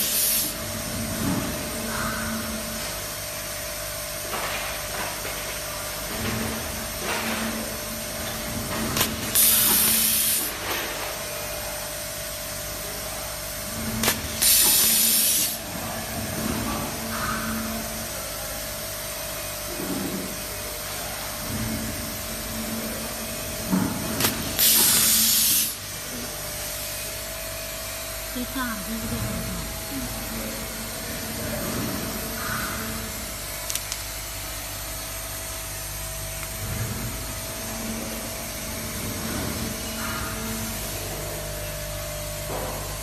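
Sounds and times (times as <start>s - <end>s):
compressed air hiss: 9.3s - 10.6s, 14.4s - 15.6s, 24.5s - 25.8s.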